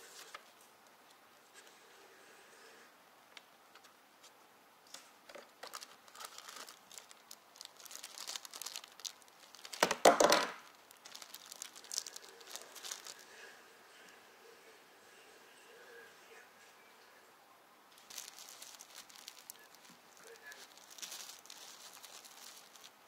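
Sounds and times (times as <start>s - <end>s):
plastic bag and paper crinkling: 4.9s - 13.5s, 17.9s - 23.0s.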